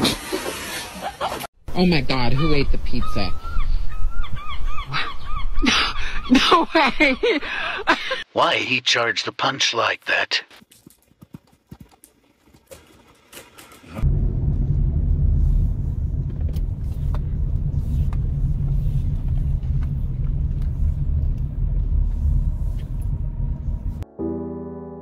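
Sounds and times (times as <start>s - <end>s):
car cabin rumble: 14.0s - 24.0s.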